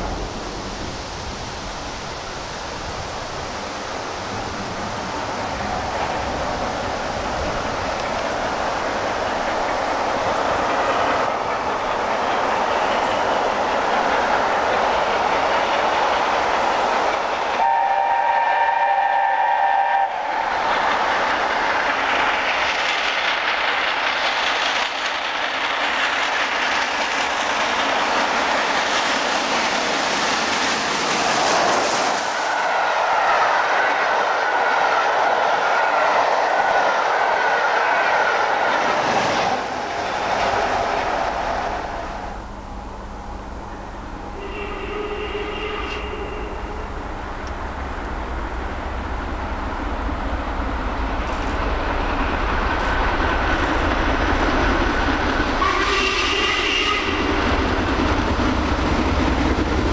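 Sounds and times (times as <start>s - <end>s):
diesel locomotive passing: 0.0s - 59.9s
steam locomotive running: 0.0s - 59.9s
steam locomotive chime whistle: 17.6s - 20.4s, 44.4s - 46.9s, 55.6s - 57.2s.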